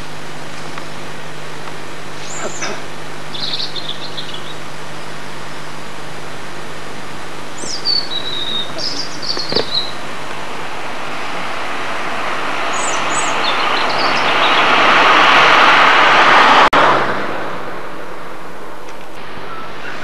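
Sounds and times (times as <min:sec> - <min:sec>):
rushing noise: 0:00.0 - 0:20.0
small birds chirping: 0:02.2 - 0:05.8, 0:07.4 - 0:10.6, 0:12.6 - 0:14.9.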